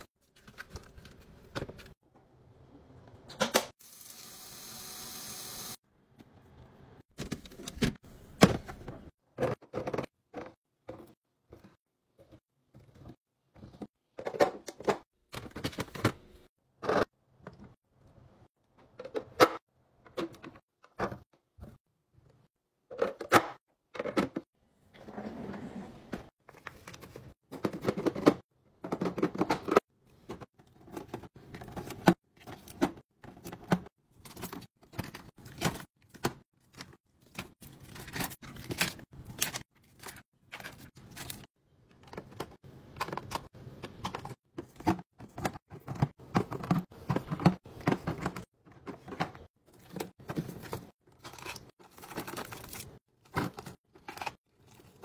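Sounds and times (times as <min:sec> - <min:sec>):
plastic containers clicking and knocking: 0:26.7 - 0:36.9, 0:41.9 - 0:54.4.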